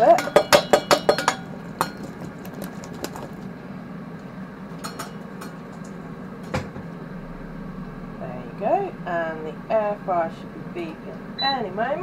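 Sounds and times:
metal colander clinking: 0.0s - 2.0s
steady low hum: 0.0s - 12.0s.

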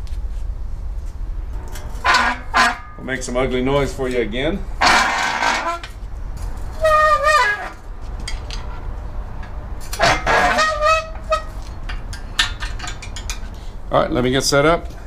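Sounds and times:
engine stand squeaking: 1.6s - 3.1s, 4.8s - 13.6s
rough metal scrape: 1.6s - 3.5s, 4.8s - 8.9s, 9.8s - 13.6s.

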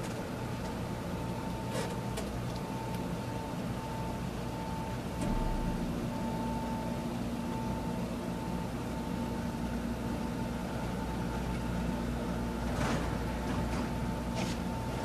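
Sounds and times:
train electrical equipment hum: 0.0s - 15.0s
faint high whine: 2.8s - 9.8s.

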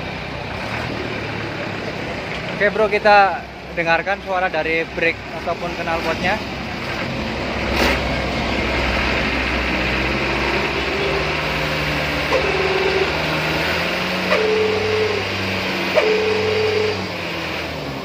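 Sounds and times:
truck engine running: 0.0s - 18.0s
short held tones: 12.3s - 13.3s, 14.2s - 17.1s.

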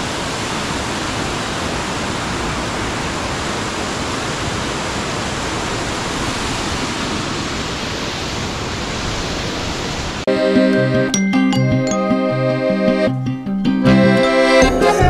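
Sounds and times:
waterfall rushing: 0.0s - 11.1s.

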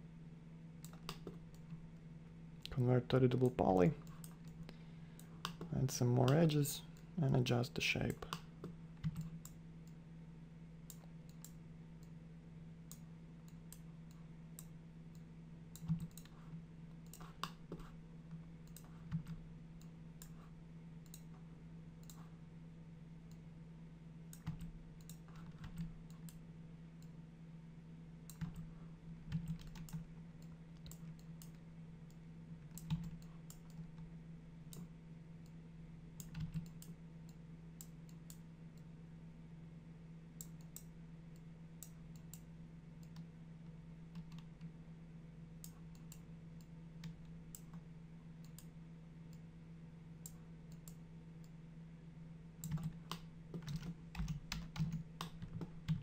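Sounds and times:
steady low hum: 0.0s - 56.0s
computer mouse clicks: 0.8s - 1.8s, 8.1s - 10.0s, 12.9s - 16.4s, 17.0s - 17.9s, 18.6s - 21.4s, 22.0s - 22.4s, 24.3s - 26.4s, 28.3s - 28.7s, 29.3s - 34.0s, 34.7s - 35.6s, 36.2s - 38.9s, 40.4s - 43.3s, 48.4s - 48.7s, 50.2s - 51.6s, 52.6s - 56.0s.

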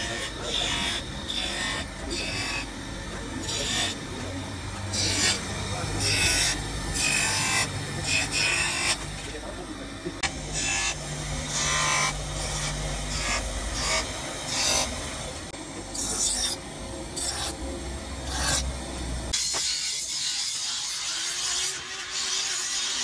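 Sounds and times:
steel grinding on wheel: 0.0s - 9.4s, 10.5s - 16.6s, 17.2s - 17.6s, 18.2s - 23.0s
motor-driven wheel humming: 0.0s - 19.4s.

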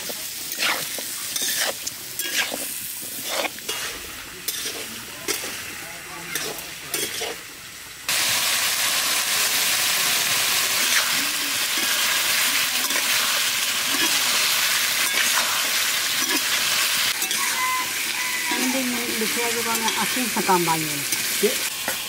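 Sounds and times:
metal spatula scraping pan: 0.0s - 5.6s, 6.3s - 7.4s
food sizzling in hot oil: 0.0s - 22.0s.

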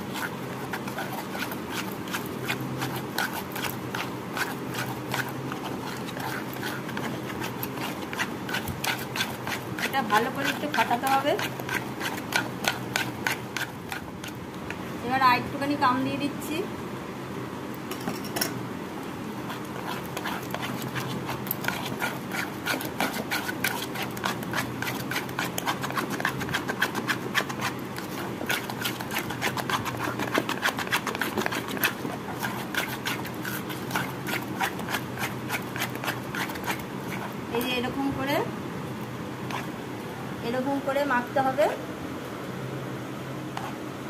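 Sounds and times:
batter slapping and squishing: 0.0s - 14.9s, 19.3s - 37.7s.

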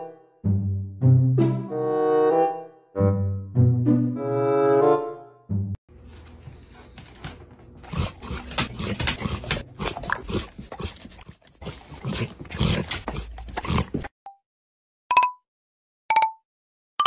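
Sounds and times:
dog making excited noises: 6.5s - 14.1s.

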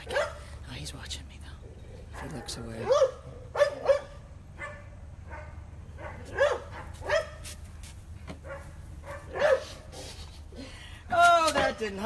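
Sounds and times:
puppy barking: 0.0s - 0.5s, 2.2s - 7.4s, 8.4s - 9.7s.

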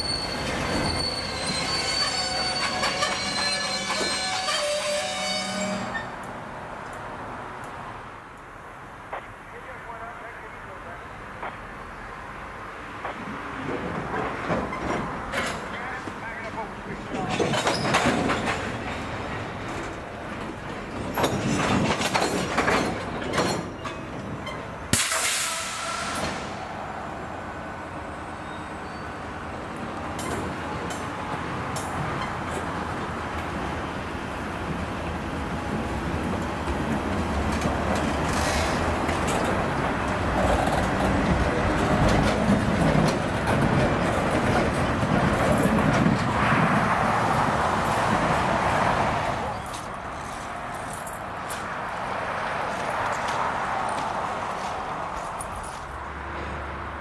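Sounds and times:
train cars clanking over rails: 0.0s - 6.4s, 13.0s - 26.9s, 27.8s - 56.7s
sharp clicks from wheels and couplers: 13.0s - 16.3s, 17.1s - 25.4s, 29.7s - 32.8s, 49.5s - 56.2s
hiss burst: 24.9s - 26.6s.

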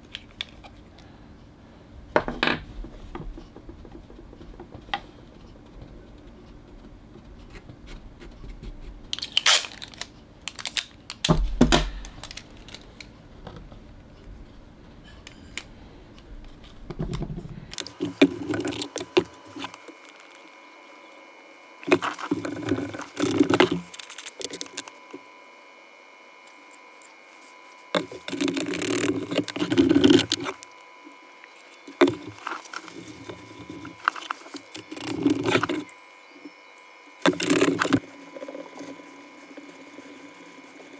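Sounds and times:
small handling sounds: 2.9s - 14.3s, 15.0s - 21.0s, 21.8s - 25.3s, 26.4s - 40.7s
stick scraping plastic cup: 16.5s - 20.4s, 21.8s - 25.2s, 27.8s - 30.7s, 31.4s - 36.0s, 37.2s - 40.7s.

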